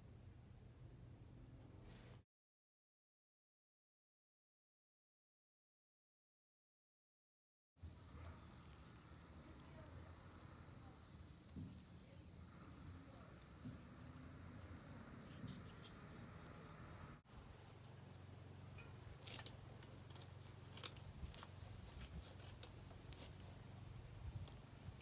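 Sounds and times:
insect trill: 7.8s - 25.0s
knife shaving hardwood: 13.3s - 16.5s, 19.2s - 23.7s.

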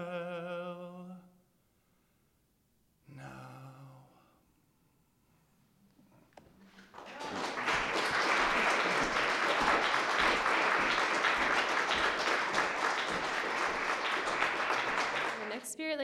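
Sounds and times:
audience applauding: 6.7s - 15.8s.

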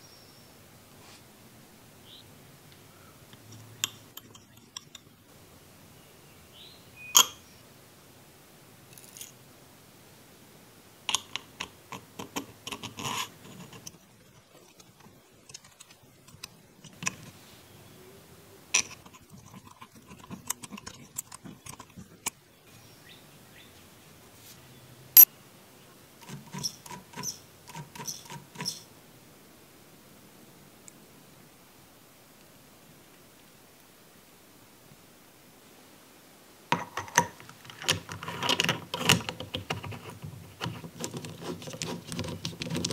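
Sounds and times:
small metal parts clicking: 3.4s - 5.1s, 8.9s - 9.4s, 11.1s - 17.4s, 18.7s - 22.4s, 36.7s - 42.9s.

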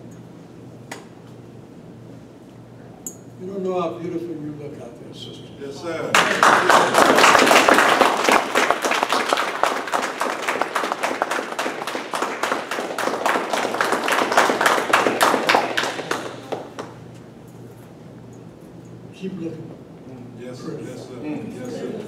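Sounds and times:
audience applauding: 6.1s - 17.0s.

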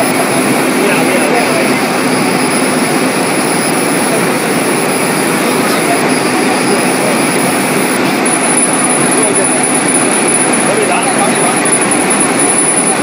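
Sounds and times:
rushing air noise: 0.0s - 12.5s
thin high whine: 0.0s - 13.0s.

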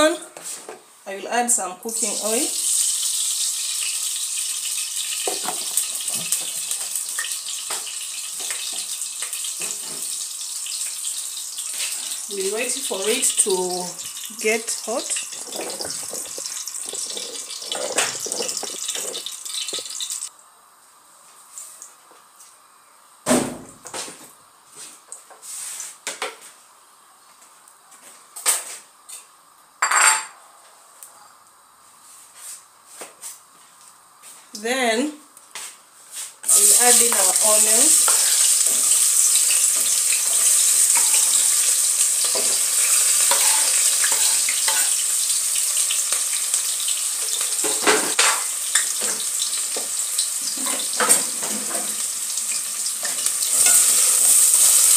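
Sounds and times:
gas burner hissing: 11.8s - 20.3s, 36.4s - 54.9s
dishes and utensils clattering: 15.2s - 19.9s, 29.8s - 30.4s, 42.2s - 45.0s, 50.5s - 52.0s.

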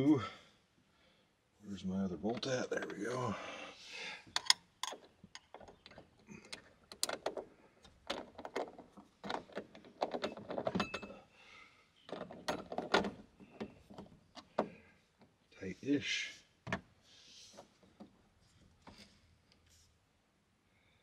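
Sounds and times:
metal hardware clicking and rattling: 4.3s - 11.3s, 12.1s - 14.7s.

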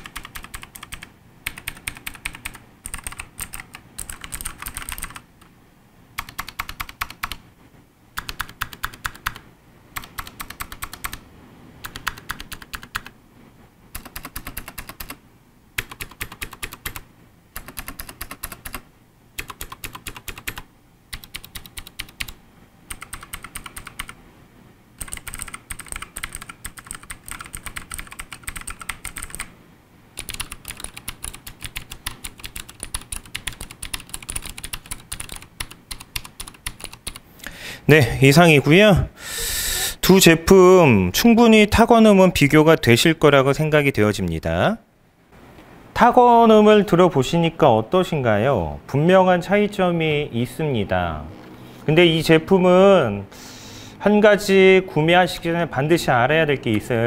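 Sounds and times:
clicky mechanical keyboard typing: 0.0s - 5.5s, 6.2s - 7.4s, 8.2s - 9.4s, 10.0s - 11.2s, 11.8s - 13.2s, 13.9s - 15.2s, 15.8s - 17.0s, 17.6s - 18.8s, 19.4s - 24.2s, 25.0s - 29.5s, 30.2s - 37.2s.

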